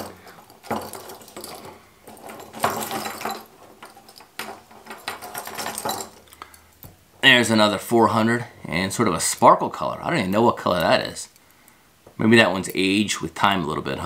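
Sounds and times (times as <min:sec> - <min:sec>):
fishing hooks clinking and rattling: 0:00.0 - 0:06.8.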